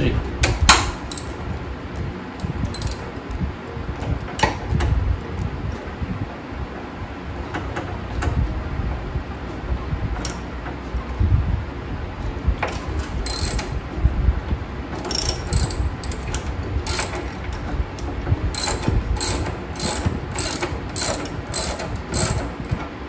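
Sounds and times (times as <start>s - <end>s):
ratchet wrench clicking: 0.7s - 1.4s, 2.4s - 3.1s, 10.2s - 10.4s, 13.2s - 13.8s, 15.0s - 17.6s, 18.5s - 22.6s.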